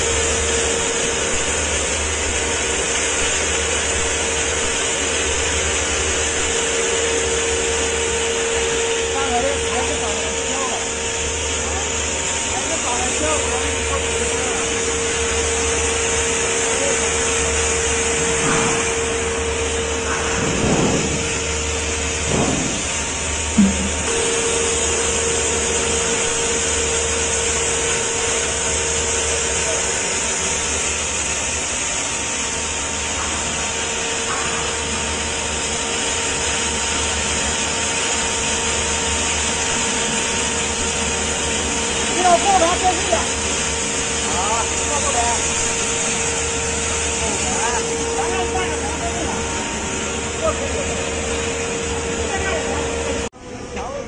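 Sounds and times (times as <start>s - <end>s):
air rushing through hose: 0.0s - 42.2s
grinder whining and humming: 0.0s - 54.0s
short knock: 22.2s - 22.9s, 23.6s - 24.1s.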